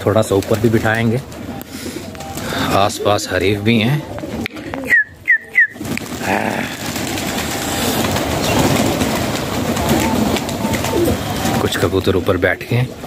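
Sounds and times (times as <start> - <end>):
pigeon wings flapping: 0.1 - 2.8, 4.2 - 12.3.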